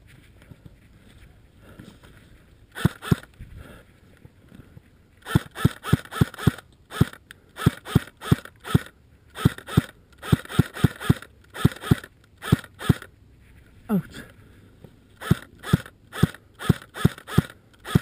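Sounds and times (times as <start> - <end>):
airsoft rifle shots: 2.8 - 3.3, 5.2 - 13.1, 15.2 - 18.0.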